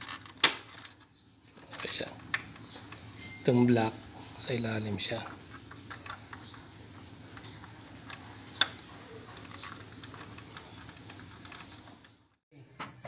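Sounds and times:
sharp plastic snap: 0.4s - 0.7s.

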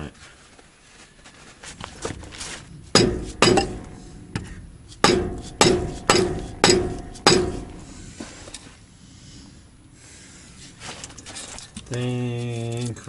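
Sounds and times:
hammer striking wooden block: 3.0s - 4.0s, 5.0s - 7.8s
metallic ring: 3.0s - 4.3s, 5.0s - 8.0s.

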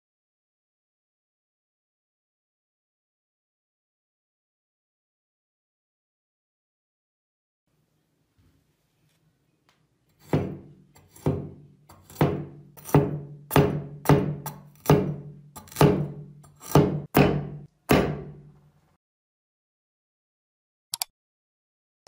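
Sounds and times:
cleaver chopping carrot: 10.2s - 18.4s.

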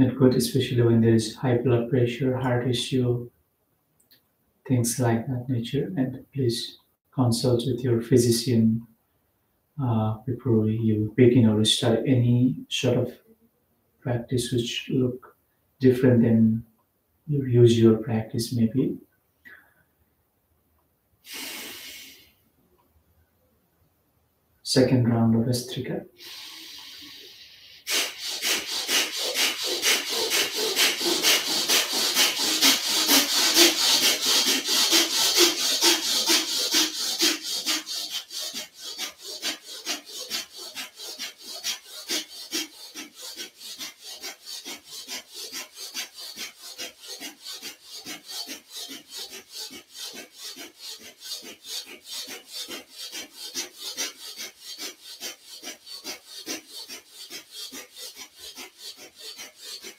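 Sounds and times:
man rapid forceful breathing: 21.3s - 22.3s, 26.2s - 59.9s.

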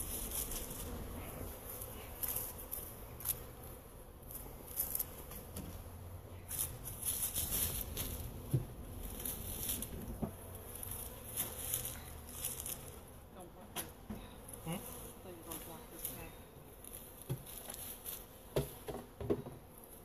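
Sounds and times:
footsteps on dry leaves and gravel: 0.0s - 1.0s, 6.5s - 13.1s, 14.7s - 18.4s
hives being handled: 0.0s - 20.0s
honeybees humming: 0.0s - 20.0s.

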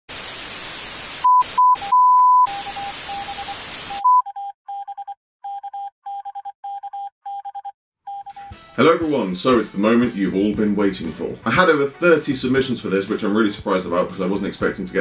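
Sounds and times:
test-tone beeps: 1.3s - 8.5s.

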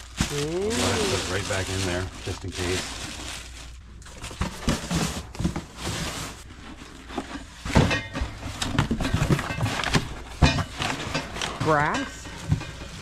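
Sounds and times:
paper rustling: 0.0s - 7.8s.

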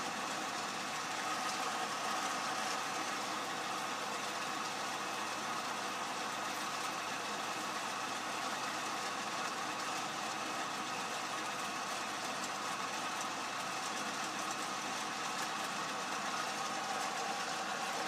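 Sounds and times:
lathe cutting steel bar: 0.0s - 18.0s.

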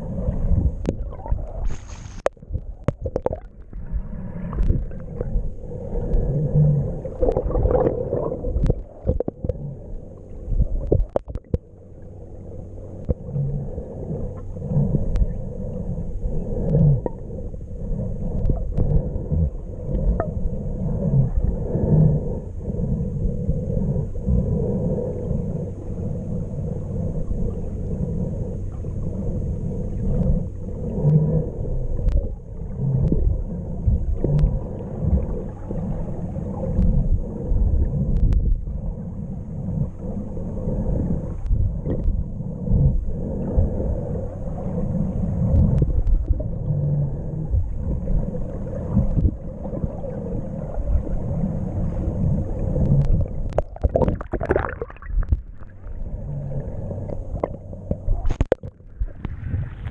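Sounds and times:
underwater gurgling of moving water: 0.0s - 59.9s
sharp underwater clicks: 0.6s - 5.3s, 5.9s - 9.6s, 10.5s - 11.7s, 18.2s - 20.4s, 30.0s - 35.5s, 37.9s - 38.8s, 41.2s - 42.3s, 45.4s - 47.5s, 52.7s - 59.9s.

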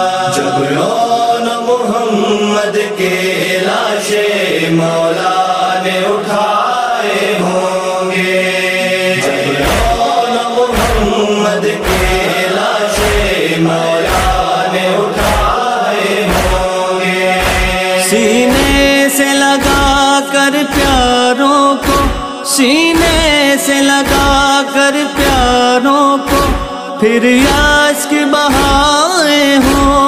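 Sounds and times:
voices chanting a lament: 0.0s - 30.0s
steady heavy beat: 9.2s - 10.2s, 10.8s - 13.4s, 14.0s - 14.5s, 15.2s - 15.6s, 16.2s - 16.8s, 17.4s - 19.0s, 19.6s - 20.1s, 20.7s - 21.2s, 21.8s - 22.3s, 23.0s - 23.4s, 24.1s - 24.5s, 25.2s - 25.6s, 26.2s - 26.8s, 27.4s - 27.9s, 28.5s - 29.0s, 29.6s - 30.0s.

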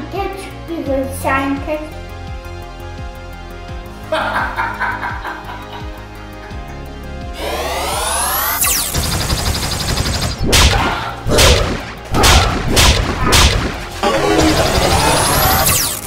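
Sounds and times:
rising charge-up sweep: 7.3s - 9.0s, 14.0s - 16.0s
loud noisy energy blasts: 7.4s - 16.0s.

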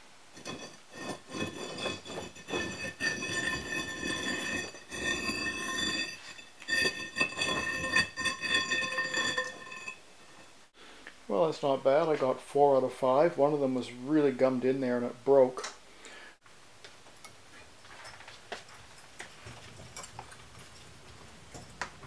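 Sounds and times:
heating element scraping refractory: 0.3s - 10.7s.

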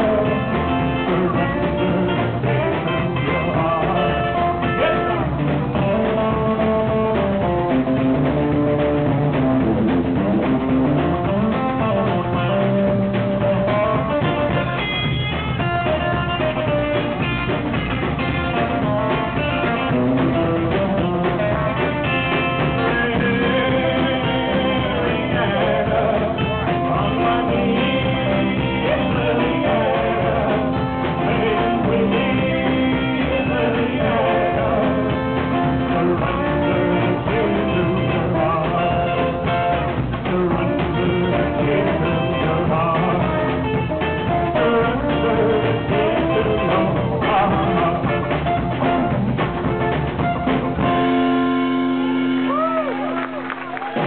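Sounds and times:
person singing: 0.0s - 7.0s, 21.2s - 48.4s
guitar: 0.0s - 54.0s
rock band playing: 0.0s - 54.0s
slapped upright bass: 0.0s - 54.0s.

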